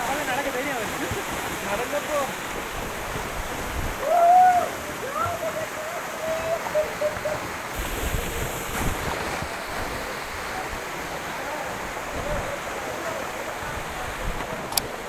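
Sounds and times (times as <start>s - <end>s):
water rushing over rocks: 0.0s - 15.0s
wind rumble on microphone: 2.6s - 4.6s, 7.7s - 11.0s, 11.9s - 12.6s, 13.6s - 14.8s.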